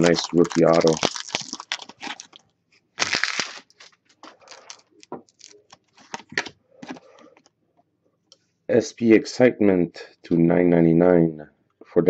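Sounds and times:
cards clicking and rustling: 0:00.0 - 0:02.4, 0:03.0 - 0:07.5
foil wrapper tearing and crinkling: 0:00.0 - 0:02.4, 0:03.0 - 0:07.0.

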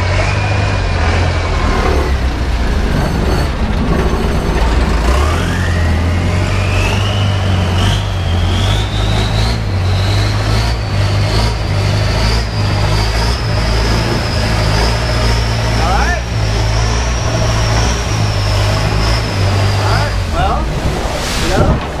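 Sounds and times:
motorboat engine drone: 0:00.0 - 0:22.0
rising engine whine: 0:00.0 - 0:22.0.

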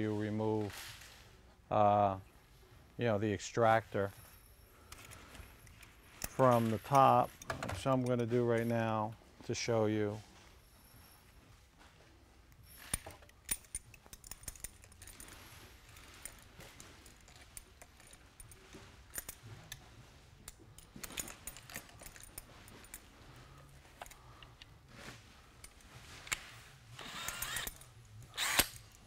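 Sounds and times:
small metal clicks and clinks: 0:04.4 - 0:08.9, 0:12.5 - 0:23.1
drill whirring: 0:27.0 - 0:28.9.

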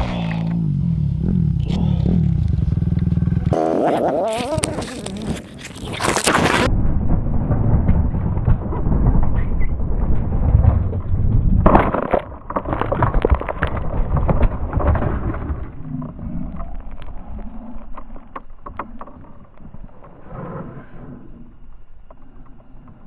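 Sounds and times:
muffled dirt bike engine rumble: 0:00.0 - 0:23.0
rustling: 0:03.8 - 0:06.7
crash knocks and scrapes: 0:04.9 - 0:16.2.

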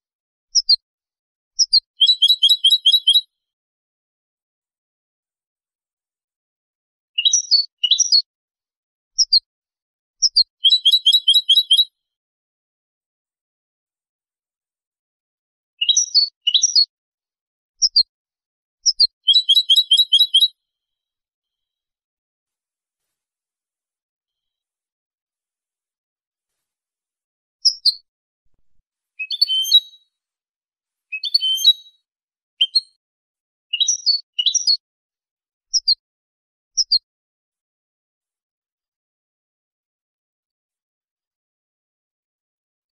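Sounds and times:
goldfinch twittering and trilling: 0:10.3 - 0:11.8, 0:18.9 - 0:20.5, 0:29.2 - 0:30.0, 0:31.2 - 0:31.9
finch twittering and chirping: 0:31.2 - 0:31.8.

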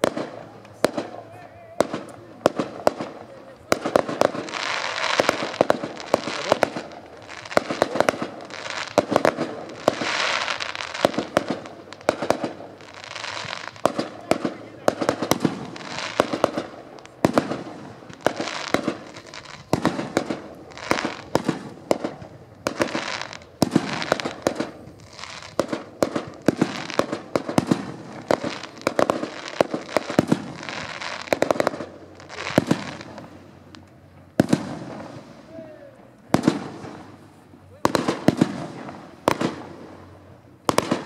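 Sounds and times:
firework bangs: 0:00.0 - 0:41.0
firework crackling: 0:00.0 - 0:41.0.

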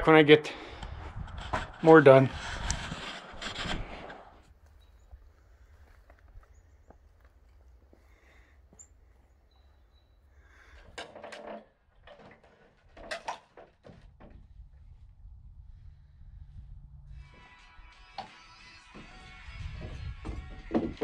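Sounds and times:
steady low rumble: 0:14.4 - 0:17.3
sharp knocks and clatters: 0:19.8 - 0:21.0.

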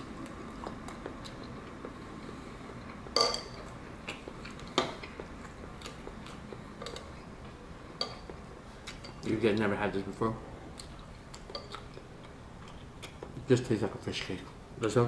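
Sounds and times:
utensils clinking on ceramic bowl: 0:03.2 - 0:03.6.

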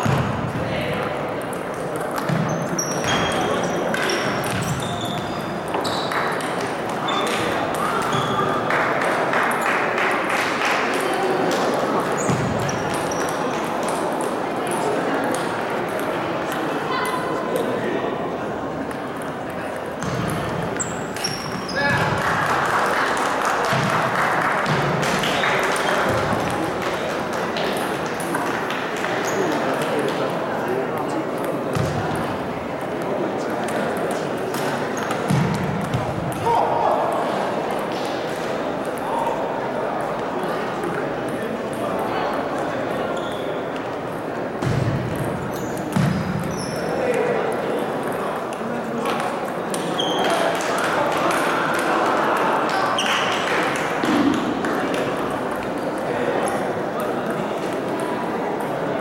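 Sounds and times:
murmur of voices: 0:00.0 - 0:59.0
shoes squeaking on floor: 0:02.2 - 0:06.4, 0:07.0 - 0:08.6, 0:12.1 - 0:13.4, 0:20.8 - 0:22.1, 0:43.1 - 0:43.6, 0:45.5 - 0:46.9, 0:49.8 - 0:50.4.

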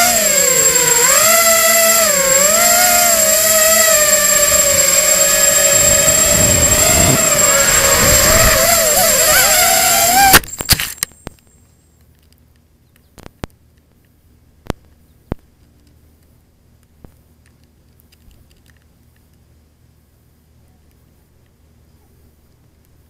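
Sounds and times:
drone motors whining: 0:00.0 - 0:11.0.

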